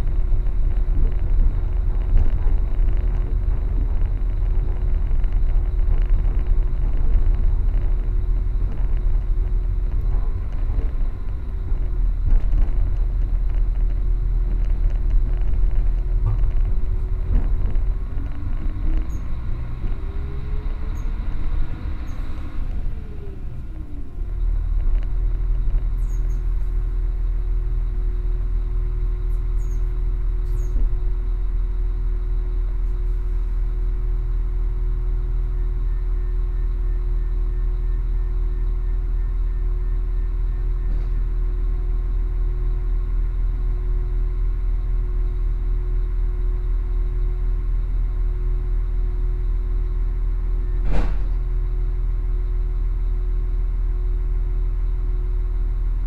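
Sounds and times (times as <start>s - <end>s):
train engine hum: 0.0s - 56.0s
sharp knock: 50.8s - 51.4s.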